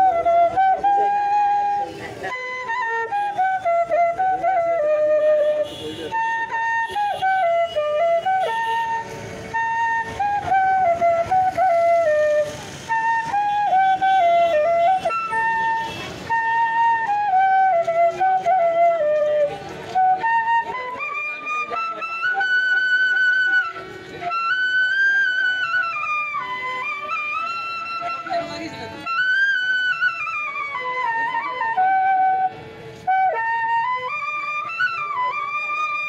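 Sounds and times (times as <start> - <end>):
bamboo flute melody: 0.0 - 36.0.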